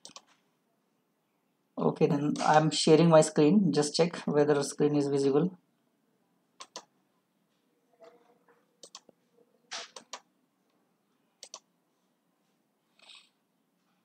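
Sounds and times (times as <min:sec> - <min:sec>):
computer mouse clicking: 0:00.0 - 0:00.4, 0:06.6 - 0:06.9, 0:08.8 - 0:09.2, 0:09.8 - 0:10.3, 0:11.4 - 0:11.7, 0:13.0 - 0:13.3.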